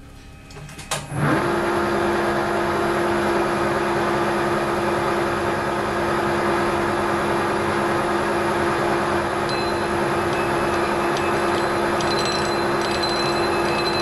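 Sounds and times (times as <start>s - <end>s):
lathe cutting metal: 9.4s - 14.0s
steady ringing tone: 9.5s - 14.0s.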